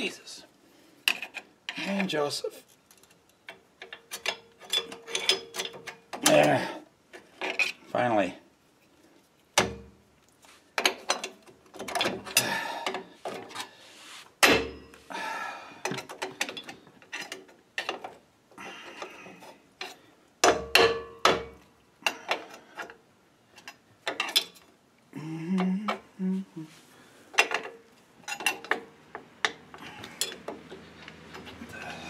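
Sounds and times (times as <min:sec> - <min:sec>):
metallic clinks and scrapes: 0:01.1 - 0:06.4, 0:29.8 - 0:32.0.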